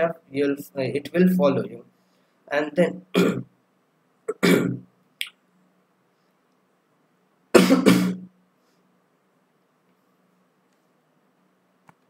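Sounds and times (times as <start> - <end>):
man coughing: 3.1 - 3.4, 4.3 - 4.8, 7.6 - 8.3.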